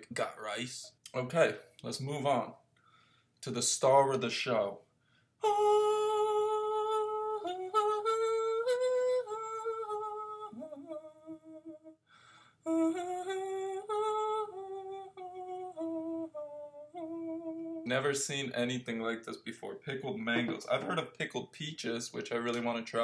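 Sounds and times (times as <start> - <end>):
man humming a tune: 14.6 - 17.9.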